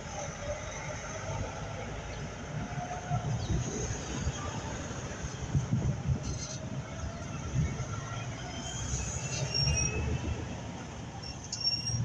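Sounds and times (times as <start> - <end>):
vehicles passing on road: 0.0 - 12.0.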